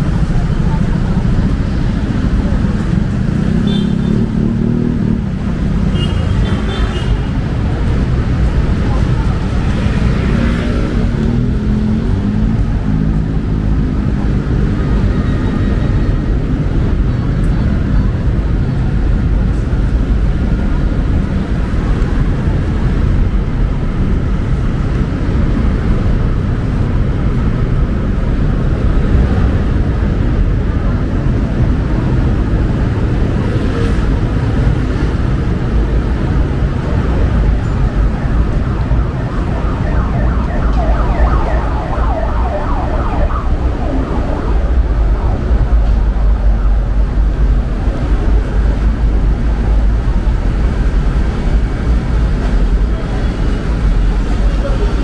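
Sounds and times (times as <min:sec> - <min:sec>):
city street traffic rumble: 0:00.0 - 0:55.0
emergency siren wailing: 0:36.9 - 0:48.8.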